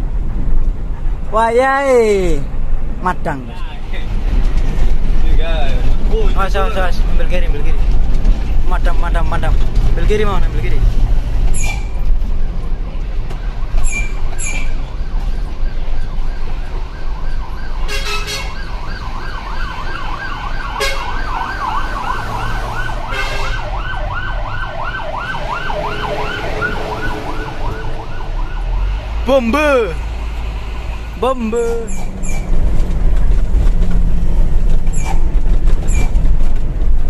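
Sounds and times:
truck engine rumble: 0.0 - 37.0
fire engine siren yelping: 13.3 - 30.1.

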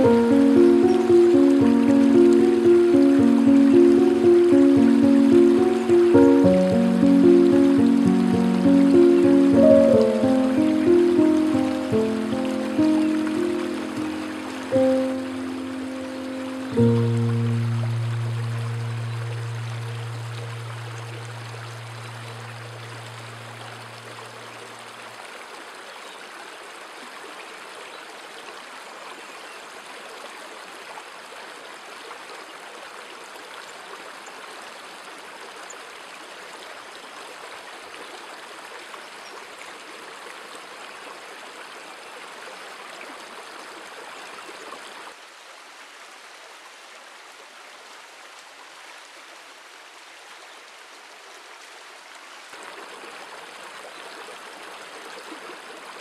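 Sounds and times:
low steady tone: 0.0 - 24.5
stream water rushing: 0.0 - 28.8.

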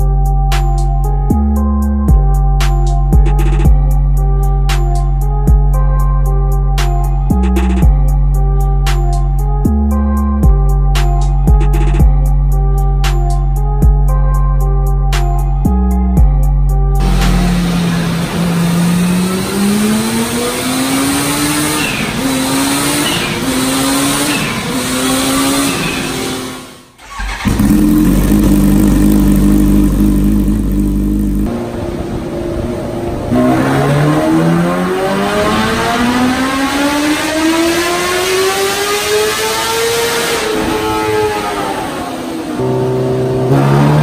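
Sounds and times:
motorcycle engine revving: 17.0 - 31.8, 33.3 - 44.0.

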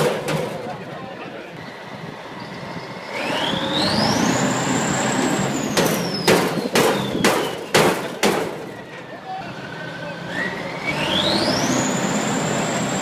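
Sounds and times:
diesel tractor engines rumbling: 0.0 - 13.0
loud sharp bangs: 5.7 - 8.8.

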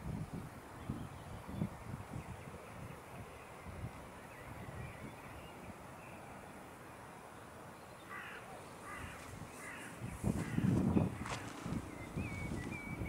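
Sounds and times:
crow cawing: 8.1 - 11.5.

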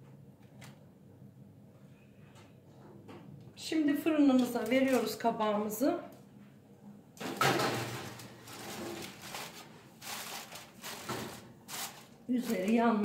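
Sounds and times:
aluminium foil crinkling: 4.4 - 5.2, 7.6 - 13.0
metal baking tray scraping: 7.7 - 13.0.

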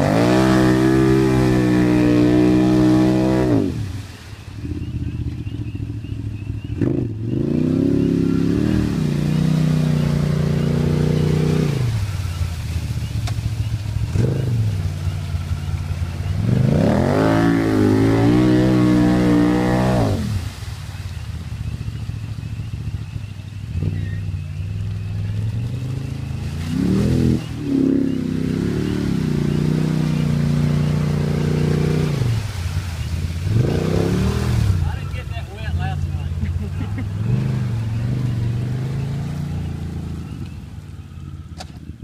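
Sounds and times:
engine revving hard: 0.0 - 4.0, 6.8 - 12.1, 16.3 - 20.5, 25.6 - 32.6, 33.4 - 34.9, 35.6 - 40.4.

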